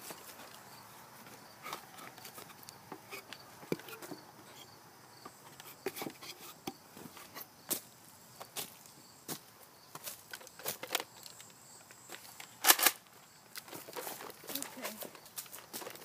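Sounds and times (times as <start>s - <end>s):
footsteps on dry leaves and twigs: 6.9s - 16.0s.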